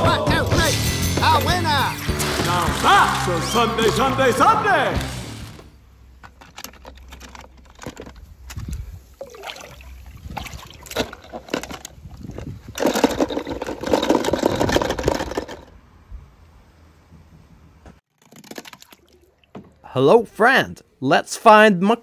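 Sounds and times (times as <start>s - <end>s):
plastic toy cars clicking: 6.2s - 8.8s, 12.7s - 15.7s
liquid sloshing: 9.2s - 11.8s, 18.1s - 19.9s.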